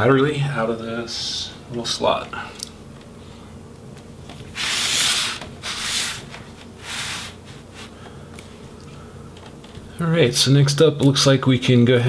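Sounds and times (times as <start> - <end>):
laptop scraping across tabletop: 4.5 - 8.0.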